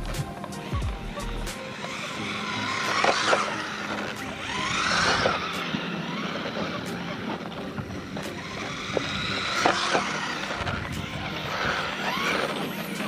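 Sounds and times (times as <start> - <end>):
electric motor whining: 0.0 - 13.0
tyres sliding on pavement: 0.0 - 13.0.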